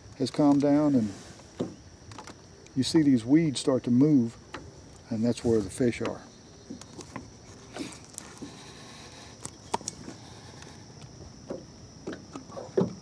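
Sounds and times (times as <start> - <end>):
high-pitched insect chorus: 0.0 - 13.0.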